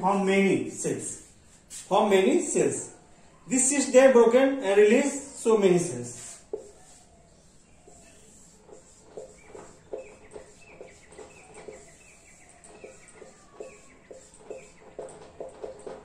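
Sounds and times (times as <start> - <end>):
marker squeaking on whiteboard: 4.9 - 16.0.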